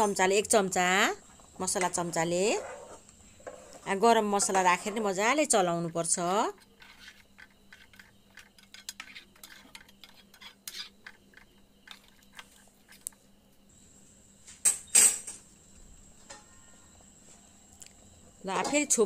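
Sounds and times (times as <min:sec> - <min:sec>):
ladle stirring in metal pan: 0:01.8 - 0:13.1.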